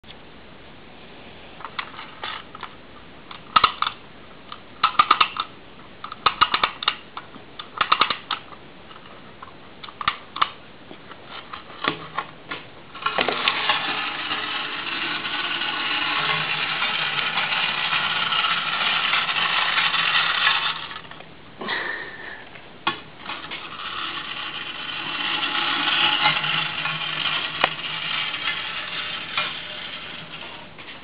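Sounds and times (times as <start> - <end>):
clockwork motor whirring: 13.0 - 21.1, 23.2 - 31.0.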